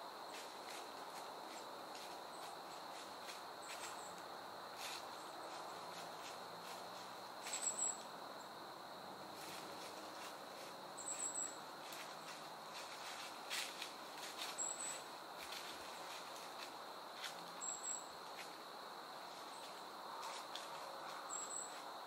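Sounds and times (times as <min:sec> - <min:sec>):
soft rustles: 0:04.8 - 0:07.7, 0:11.8 - 0:17.6.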